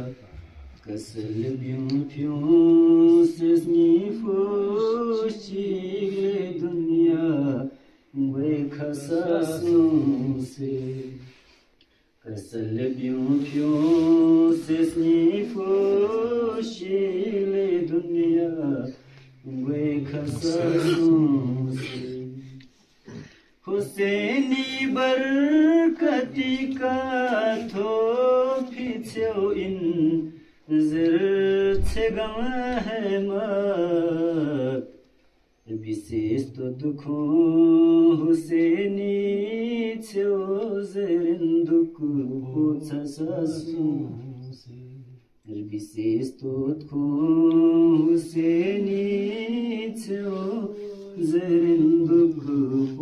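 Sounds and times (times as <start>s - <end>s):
person chanting unaccompanied: 0.0s - 11.3s, 12.2s - 35.0s, 35.7s - 53.0s.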